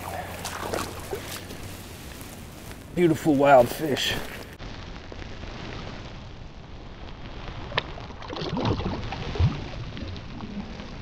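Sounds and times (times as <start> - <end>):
fish splashing in water: 0.0 - 1.8, 7.9 - 11.0
shallow river water running: 0.0 - 4.4.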